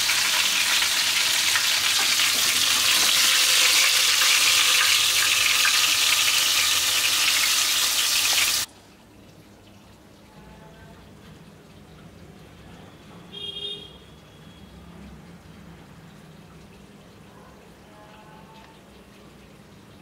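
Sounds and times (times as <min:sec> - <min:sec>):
fish sizzling in hot oil: 0:00.0 - 0:08.7.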